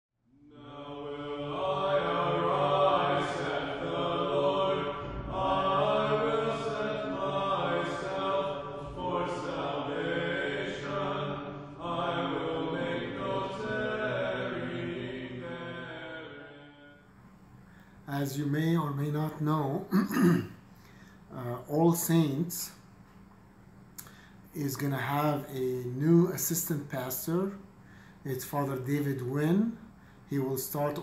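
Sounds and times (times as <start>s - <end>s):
person chanting: 0.3s - 16.8s.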